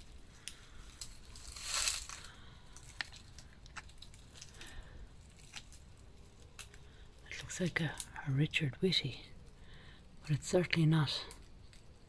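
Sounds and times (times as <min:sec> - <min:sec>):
footsteps crunching on gravel: 0:01.0 - 0:03.9.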